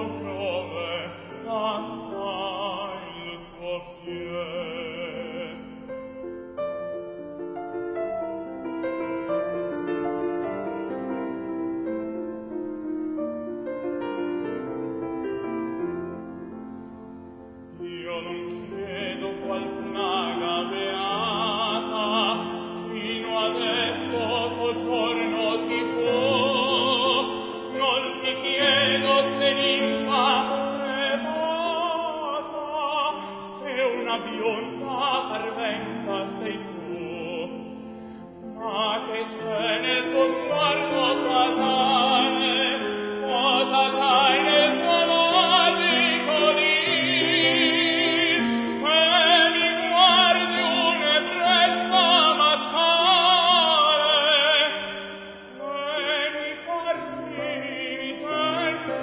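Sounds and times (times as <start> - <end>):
piano accompaniment: 0.0 - 59.0
tenor singing with vibrato: 15.7 - 59.0.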